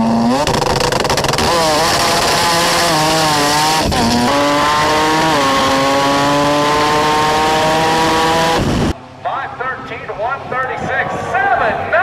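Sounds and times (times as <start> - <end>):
drag car engine at full throttle: 0.0 - 9.0.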